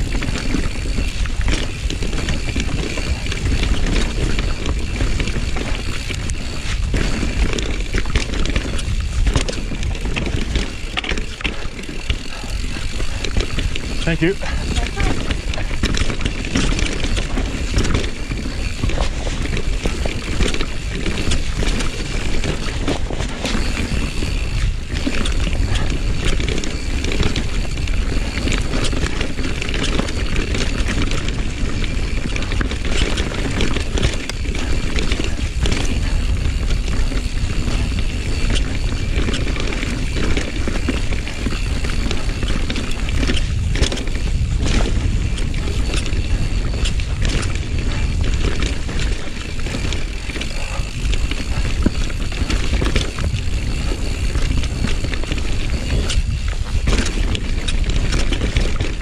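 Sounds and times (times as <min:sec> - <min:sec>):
bike rattling over bumps: 0:00.0 - 0:59.0
bike tyres rumbling over dirt: 0:00.0 - 0:59.0
wind rumble on microphone: 0:00.0 - 0:59.0.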